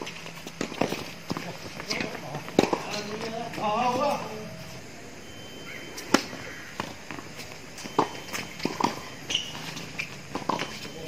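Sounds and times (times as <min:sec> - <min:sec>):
ball bouncing on hard court: 0:00.0 - 0:03.6, 0:06.0 - 0:10.9
racket hitting tennis ball: 0:00.0 - 0:03.6, 0:06.0 - 0:10.9
players' footsteps: 0:00.0 - 0:04.9, 0:05.9 - 0:11.0.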